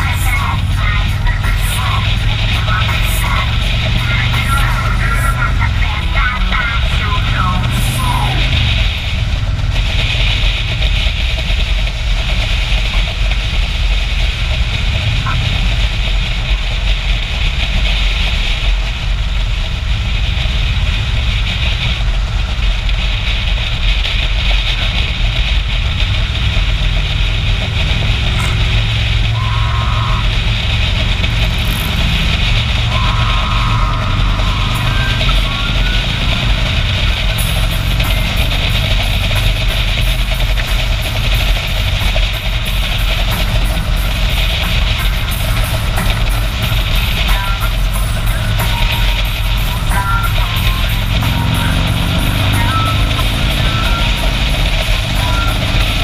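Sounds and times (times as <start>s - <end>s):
motorcycle engine running: 0.0s - 56.0s
wind rushing: 18.2s - 56.0s.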